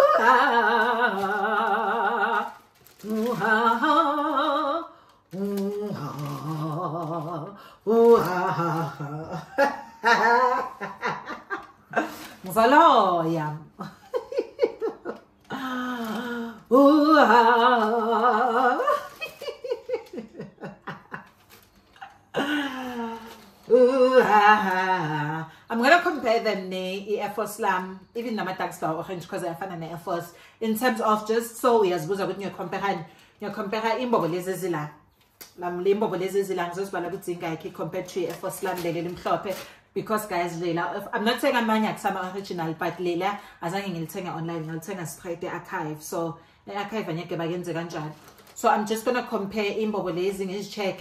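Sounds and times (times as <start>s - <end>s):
woman laughing: 0.0s - 2.5s, 5.5s - 25.4s
woman singing with vibrato: 0.0s - 13.7s, 15.5s - 20.0s, 22.3s - 25.6s.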